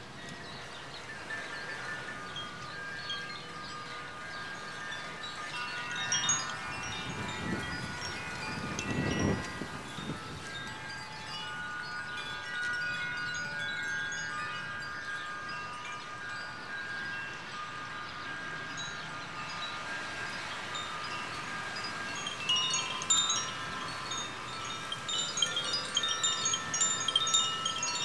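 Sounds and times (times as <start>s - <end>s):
wind chimes ringing: 0.0s - 28.0s
wind rumbling on microphone: 0.0s - 28.0s.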